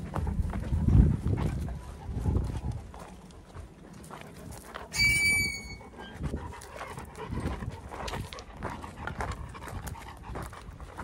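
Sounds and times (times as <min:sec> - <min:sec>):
dog panting: 0:00.0 - 0:04.9, 0:05.6 - 0:11.0
footsteps crunching on gravel: 0:00.0 - 0:11.0
short high squeal: 0:04.9 - 0:05.9.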